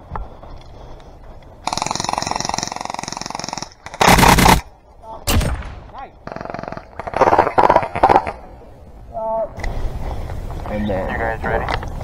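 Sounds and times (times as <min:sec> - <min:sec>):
airsoft gun full-auto bursts: 0:01.6 - 0:04.7.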